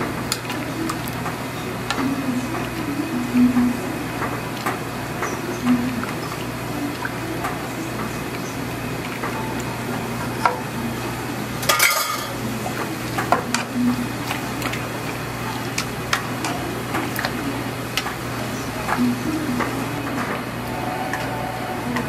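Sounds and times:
low hum: 5.5s - 11.8s.

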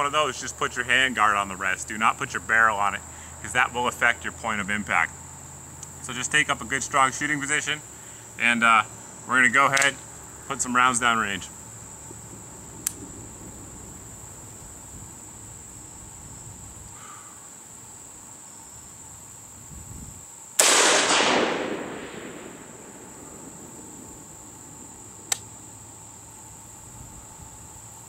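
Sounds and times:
rifle shot with echo: 20.6s - 25.3s.

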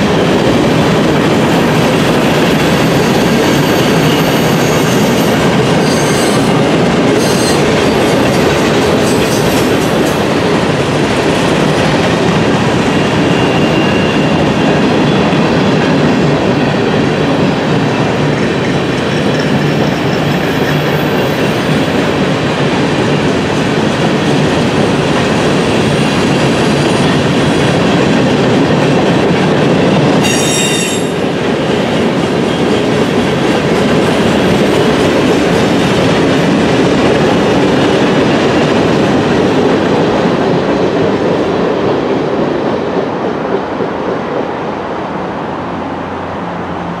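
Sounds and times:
train wheels rumbling on rails: 0.0s - 47.0s
high wheel squeal: 2.8s - 6.6s, 7.2s - 7.7s, 13.0s - 15.3s, 30.2s - 31.2s.

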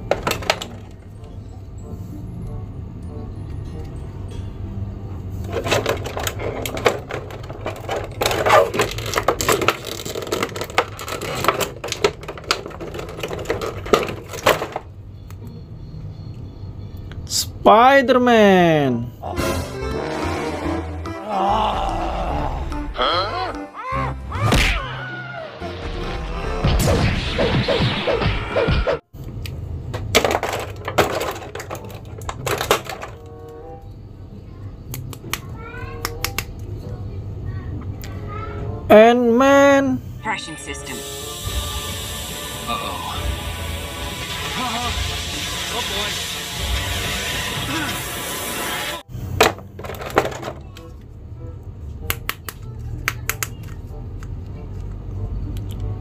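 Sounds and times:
plastic packaging crackling: 7.3s - 14.5s
cartoon whacks falling in pitch: 24.3s - 25.0s
cartoon crash: 24.3s - 29.0s, 41.5s - 49.0s.

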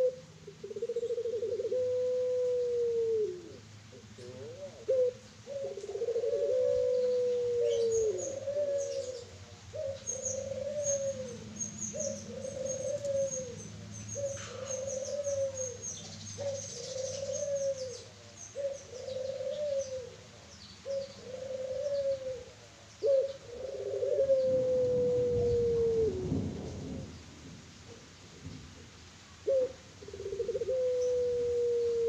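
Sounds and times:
dove cooing: 0.0s - 27.2s, 29.4s - 32.0s
small birds chirping: 6.9s - 23.6s.

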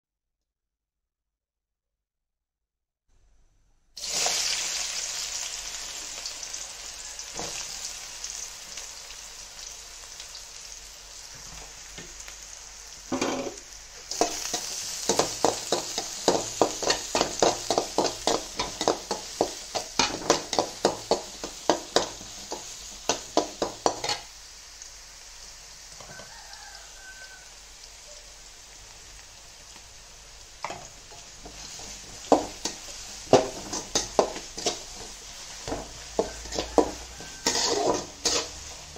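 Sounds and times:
onions sizzling in oil: 4.0s - 38.9s
metal spatula scraping pan: 13.1s - 24.3s, 31.1s - 38.9s.

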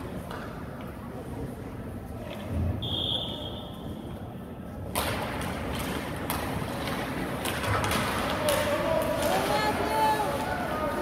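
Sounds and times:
referee's whistle blast: 2.8s - 3.7s.

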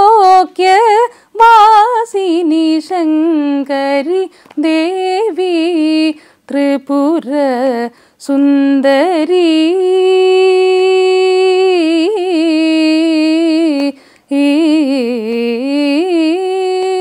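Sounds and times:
woman singing unaccompanied: 0.0s - 17.0s
singer breathing: 1.1s - 1.4s, 6.2s - 6.5s, 7.9s - 8.2s, 14.0s - 14.3s.

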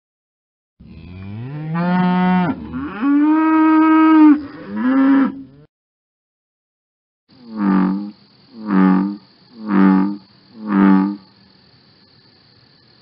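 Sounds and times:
cow mooing: 0.8s - 5.7s.

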